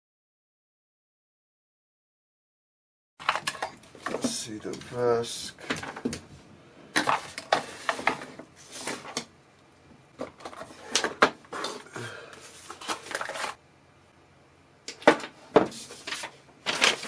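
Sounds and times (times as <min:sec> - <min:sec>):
parts and wires rustling: 0:03.2 - 0:09.3, 0:09.9 - 0:13.6, 0:14.9 - 0:17.0.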